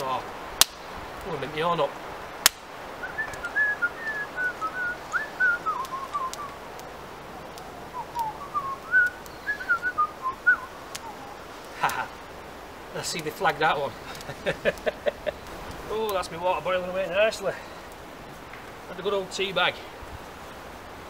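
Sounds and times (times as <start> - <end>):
sharp snap: 0.6 - 0.9, 2.4 - 3.5
man whistling a tune: 3.0 - 6.6, 8.0 - 11.2.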